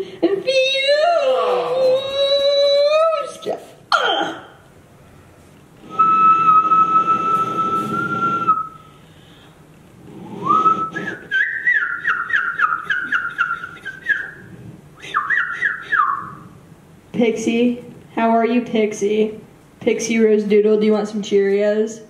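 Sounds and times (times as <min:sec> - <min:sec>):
whistling through amplifier speaker: 0:05.9 - 0:08.8, 0:10.4 - 0:14.4, 0:15.0 - 0:16.4.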